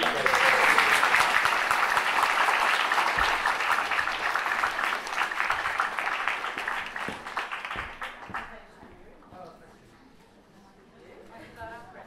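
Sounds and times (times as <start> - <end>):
audience applauding: 0.0 - 8.6.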